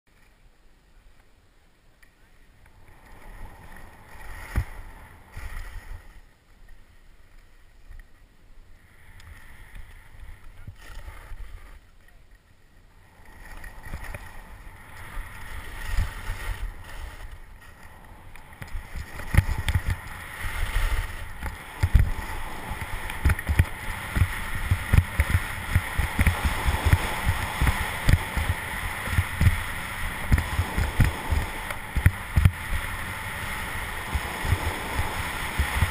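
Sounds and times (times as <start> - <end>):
skis thumping on bumps: 2.0 - 8.3, 13.2 - 35.9
skis scraping over snow: 2.0 - 35.9
wind on microphone: 13.0 - 35.9.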